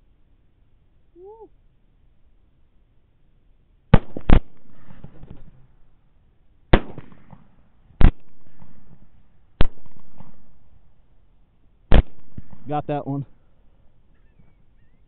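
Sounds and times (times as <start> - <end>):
rifle shots with rolling echo: 3.9 - 5.9, 6.7 - 11.1, 11.9 - 13.1.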